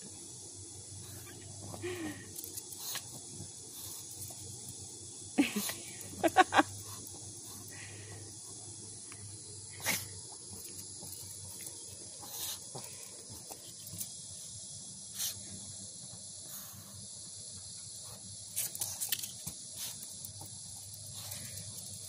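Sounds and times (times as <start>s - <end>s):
cicada chorus buzzing: 0.0s - 22.0s
dog sniffing: 9.7s - 14.0s.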